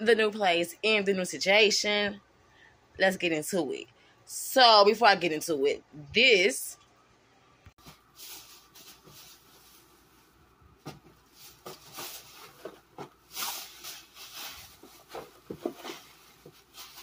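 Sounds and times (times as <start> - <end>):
grocery bags rustling: 7.8 - 17.0.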